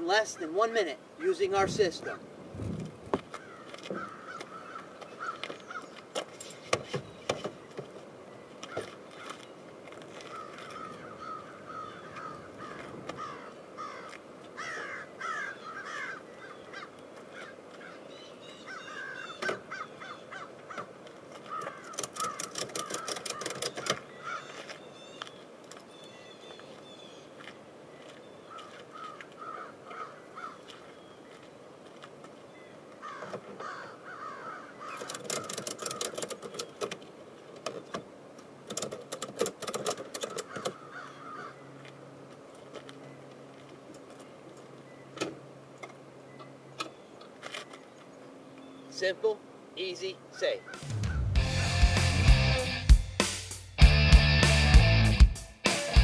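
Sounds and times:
crows cawing: 3.3 - 6.0, 10.2 - 25.1, 28.4 - 30.9, 33.0 - 36.1, 40.2 - 41.7, 50.4 - 51.4
quick run of clicks: 21.9 - 24.1.

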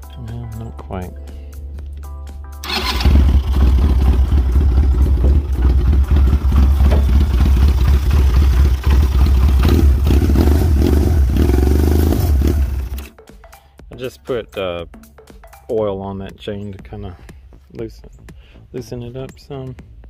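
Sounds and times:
engine running steadily: 2.7 - 13.1.

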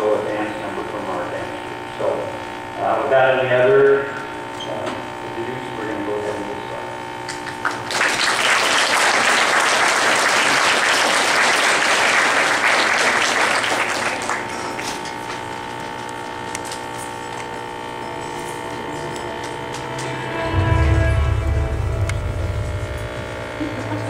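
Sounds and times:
electrical hum: 0.0 - 24.0
audience applause: 7.3 - 15.1.

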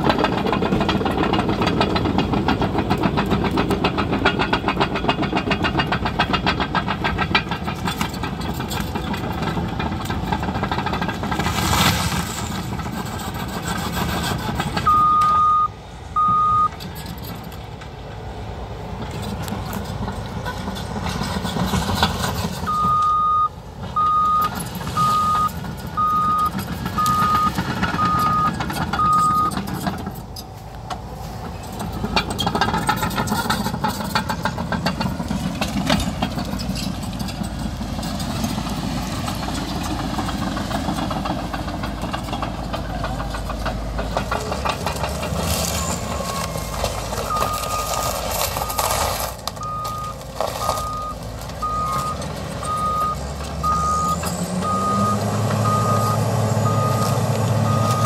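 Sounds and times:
bulldozer diesel engine running: 0.0 - 58.0
reverse alarm beeping: 14.9 - 16.7, 22.7 - 29.6, 49.6 - 58.0.

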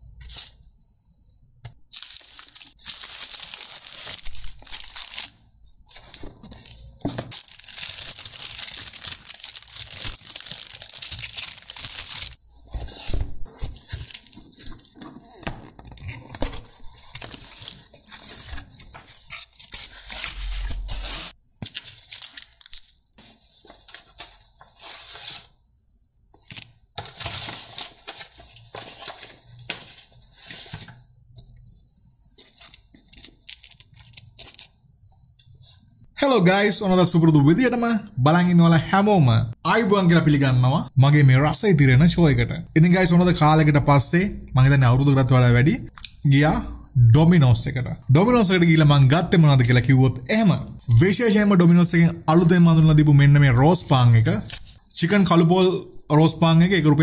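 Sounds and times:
food packaging crinkling and tearing: 1.9 - 25.6, 26.3 - 31.0, 32.2 - 34.8.

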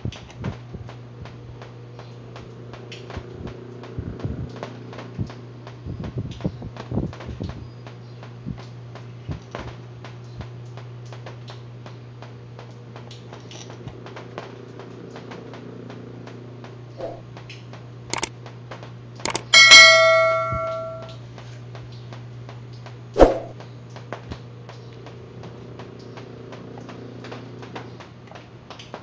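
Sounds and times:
bright bell ding: 19.3 - 21.1
faint regular ticking: 19.3 - 21.1
sharp clicks: 19.3 - 21.1.

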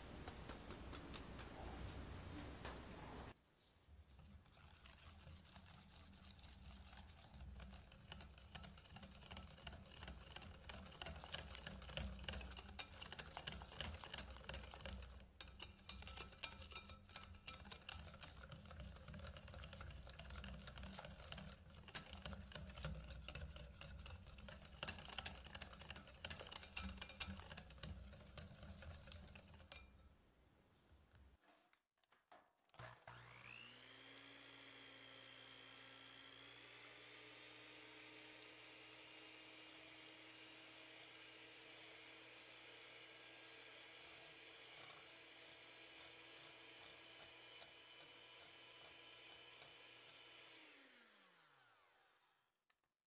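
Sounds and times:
whisk tapping a glass bowl: 4.5 - 29.9.

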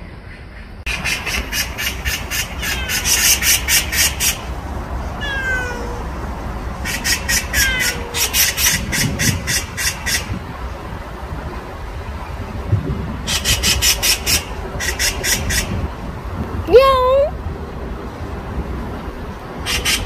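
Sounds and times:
cat meowing: 5.2 - 6.1, 7.5 - 8.2.

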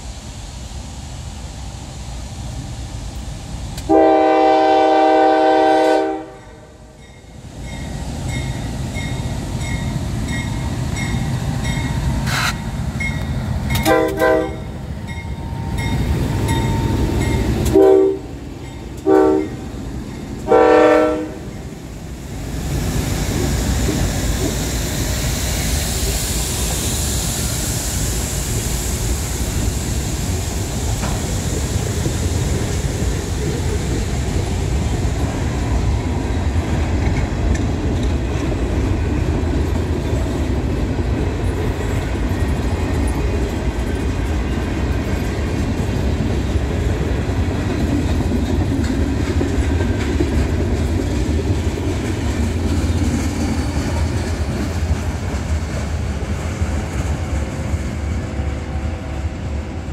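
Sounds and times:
train wheels rolling on rails: 0.0 - 59.9
locomotive engines rumbling: 1.4 - 59.9
locomotive air horn blasts: 3.9 - 6.9, 13.8 - 14.8, 17.7 - 18.4, 19.0 - 19.6, 20.4 - 21.5
locomotive bell ringing: 7.0 - 12.2, 12.9 - 20.6.

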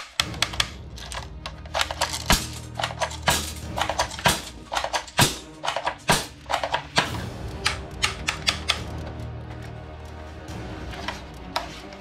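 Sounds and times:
plastic toy guns clattering: 0.0 - 8.9.

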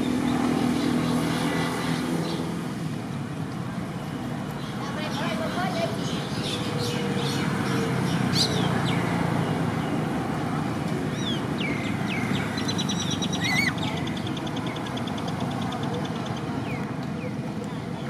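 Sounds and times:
outdoor background noise: 0.0 - 18.0
birds chirping: 4.5 - 18.0.

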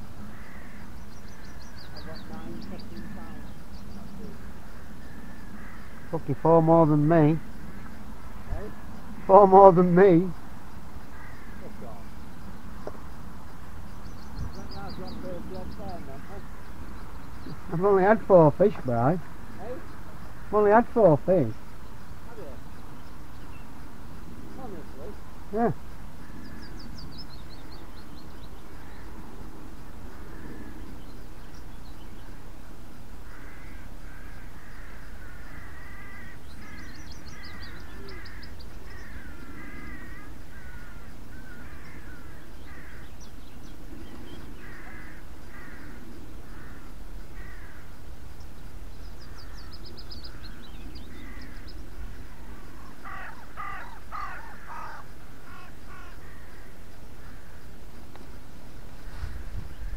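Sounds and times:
birds trilling and warbling: 0.0 - 59.9
crow cawing: 0.2 - 10.4, 11.0 - 12.2, 14.8 - 21.6, 24.6 - 26.9, 28.6 - 29.5, 30.1 - 31.0, 33.2 - 43.4, 44.2 - 48.1, 49.2 - 57.8.

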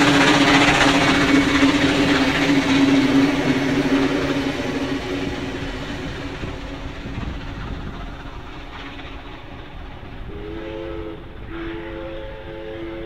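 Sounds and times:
train carriages rumbling on rails: 0.0 - 13.0
steam train whistle: 10.3 - 13.0.

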